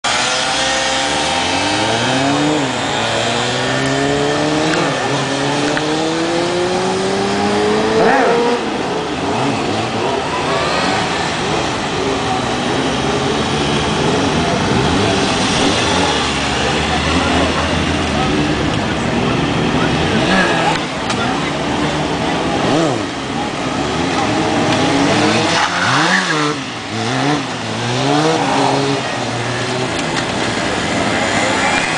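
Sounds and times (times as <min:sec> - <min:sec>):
motorcycle engines revving: 0:00.0 - 0:31.9.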